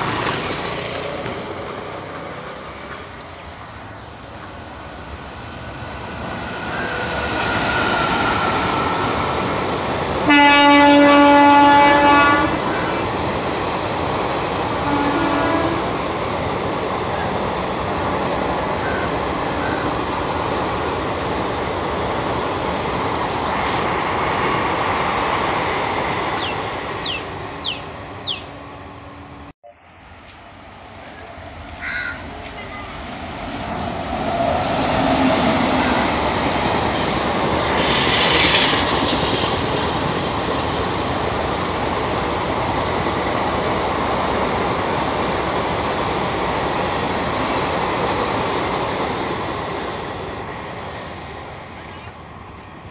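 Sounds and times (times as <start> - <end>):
train wheels on rails: 0.0 - 29.5, 31.2 - 52.9
electric locomotive approaching: 0.0 - 52.9
bird calling: 26.2 - 28.6.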